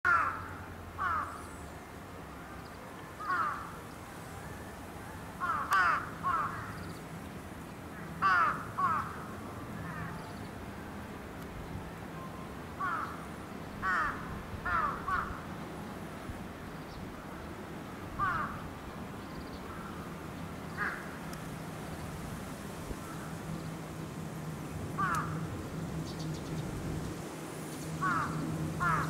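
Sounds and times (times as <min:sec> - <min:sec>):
crow cawing: 0:00.1 - 0:01.4, 0:03.2 - 0:03.7, 0:05.4 - 0:06.8, 0:08.2 - 0:09.2, 0:12.8 - 0:13.2, 0:13.8 - 0:15.4, 0:18.2 - 0:18.6, 0:20.8 - 0:21.2, 0:25.0 - 0:25.4, 0:28.0 - 0:29.0.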